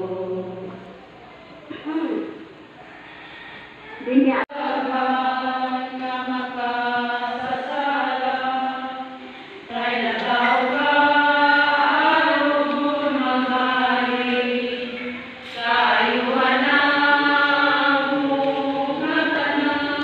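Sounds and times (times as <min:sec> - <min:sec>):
voices chanting in unison: 0:03.3 - 0:20.0.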